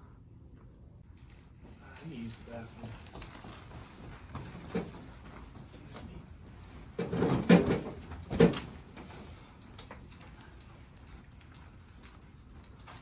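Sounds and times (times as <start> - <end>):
chair and furniture moving: 3.3 - 10.5.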